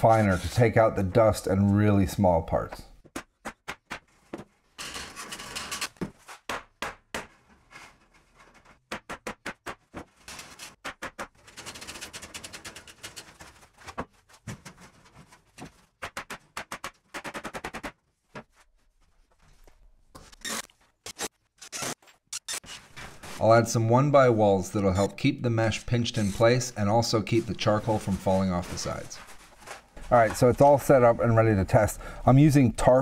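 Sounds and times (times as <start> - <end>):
wire mesh scraping: 11.4 - 13.8.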